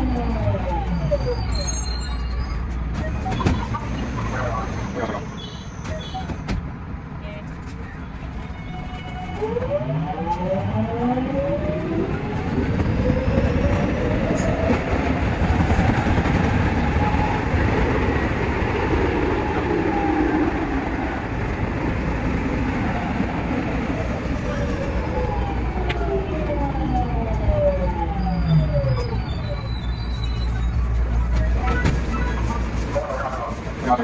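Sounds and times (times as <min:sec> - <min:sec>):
train running gear rumble: 0:10.4 - 0:28.3.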